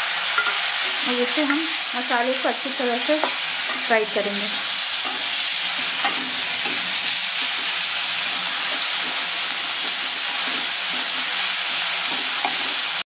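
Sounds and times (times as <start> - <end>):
masala sizzling in hot oil: 0.0 - 13.0
spatula stirring: 3.2 - 13.0.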